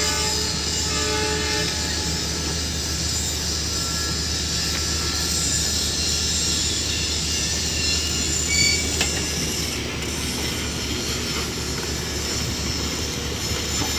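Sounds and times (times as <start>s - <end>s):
short high squeal: 0.0s - 9.9s
crane engine drone: 0.0s - 13.9s.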